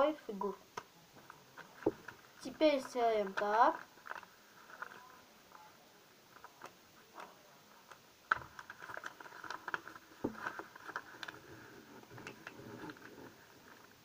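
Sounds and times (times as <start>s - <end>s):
paper crinkling as it is folded: 1.2s - 14.0s.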